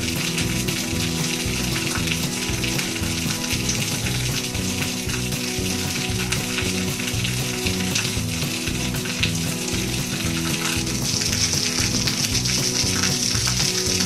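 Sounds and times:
background music: 0.0 - 14.0
steady sizzling hiss: 0.0 - 14.0.

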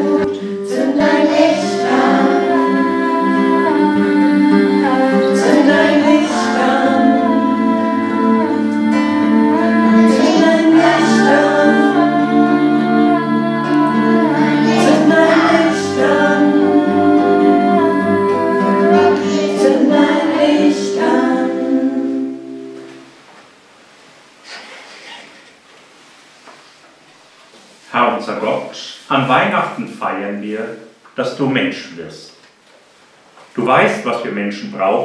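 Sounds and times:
women singing: 0.0 - 22.8
classical guitar: 0.0 - 23.4.

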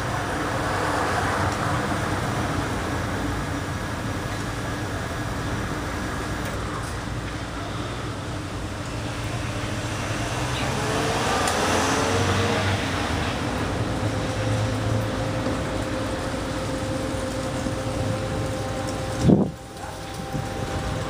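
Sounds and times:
street traffic rumble: 0.0 - 21.0
vehicle passing: 8.6 - 21.0.

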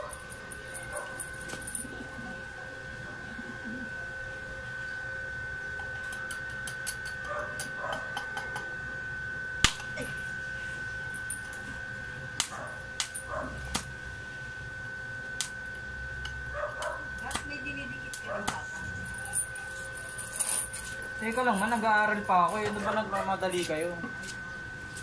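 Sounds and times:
steady high tone: 0.0 - 25.0
welding arc crackles and ticks: 5.8 - 7.8, 12.3 - 13.9, 15.4 - 18.6.

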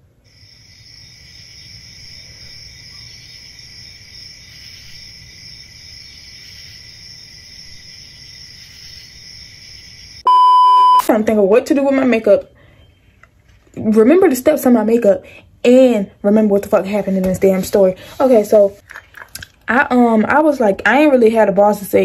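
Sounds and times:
crickets chirping: 0.2 - 10.3.

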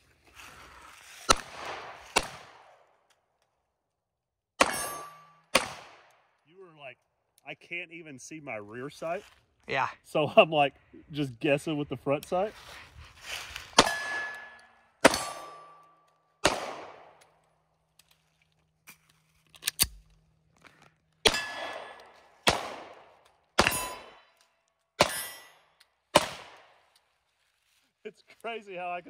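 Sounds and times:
pistol shots: 1.3 - 2.8, 4.6 - 6.2, 13.8 - 15.8, 16.4 - 17.2, 21.2 - 24.2, 25.0 - 26.8
short metallic ring: 4.6 - 5.5, 23.6 - 24.4.

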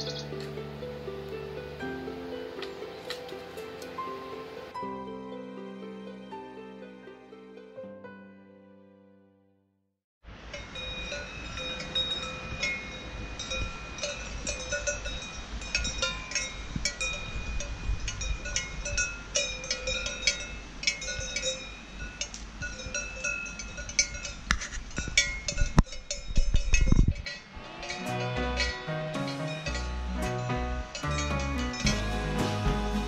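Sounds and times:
cow bells clanking: 0.0 - 0.4, 10.5 - 33.0.

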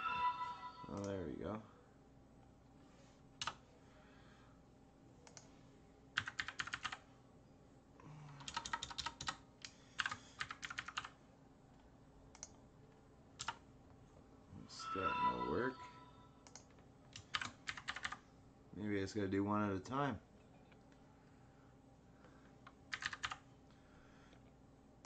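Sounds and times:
keyboard typing: 6.2 - 7.0, 8.3 - 11.2, 13.4 - 13.6, 16.4 - 18.2, 22.9 - 23.4.

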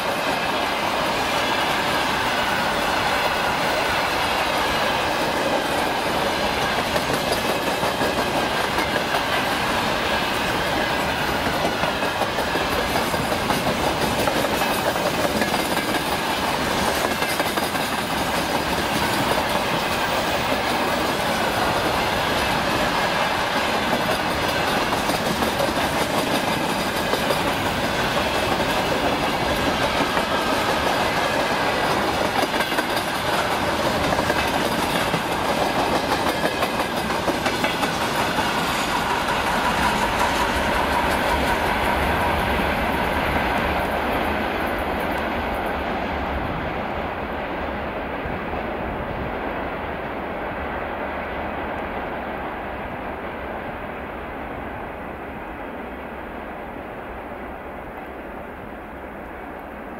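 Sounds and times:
train wheels rumbling on rails: 0.0 - 59.9.

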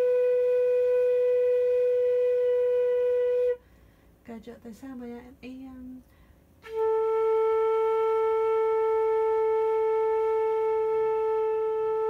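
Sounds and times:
flute long held note: 0.0 - 3.6, 6.6 - 12.0.

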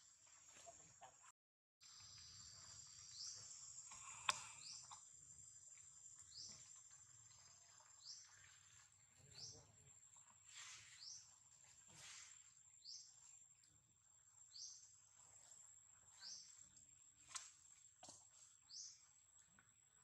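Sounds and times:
insect drone: 1.8 - 6.5
bird chirping: 1.9 - 9.7, 16.1 - 16.6.

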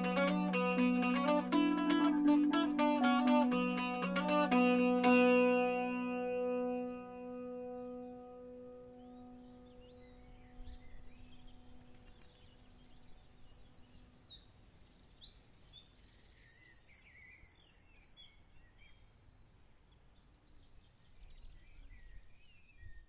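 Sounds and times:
background music: 0.0 - 9.9
wild birds singing: 7.7 - 23.0.

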